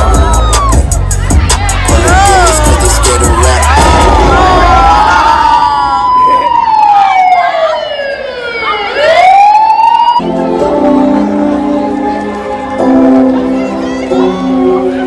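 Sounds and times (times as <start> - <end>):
siren-like glide over loudspeaker: 4.7 - 11.1
music with held chords: 10.2 - 15.0.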